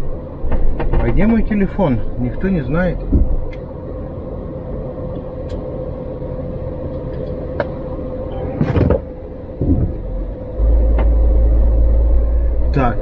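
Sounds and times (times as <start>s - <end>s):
diesel engine idling: 0.0s - 13.0s
heavy low rumble: 0.0s - 13.0s.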